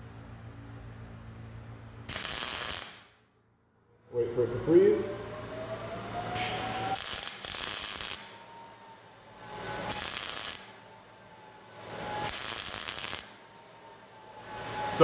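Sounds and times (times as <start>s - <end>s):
welder buzzing bursts: 2.1s - 3.1s, 6.4s - 8.4s, 9.8s - 10.8s, 12.2s - 13.5s.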